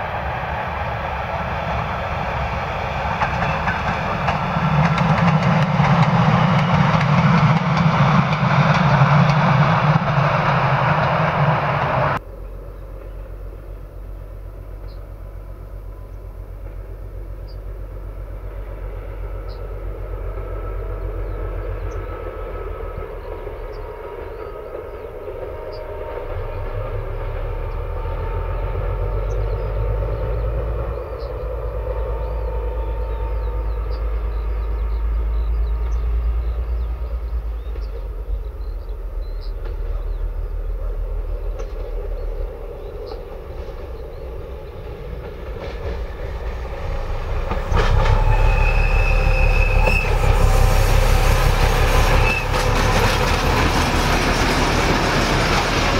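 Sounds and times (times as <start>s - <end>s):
diesel locomotive engine drone: 0.0s - 55.9s
birds chirping: 18.8s - 27.0s, 27.6s - 55.9s.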